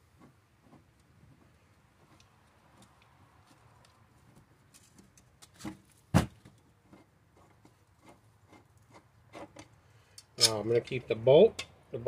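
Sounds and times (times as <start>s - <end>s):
rubbing and handling noise: 0.0s - 9.7s.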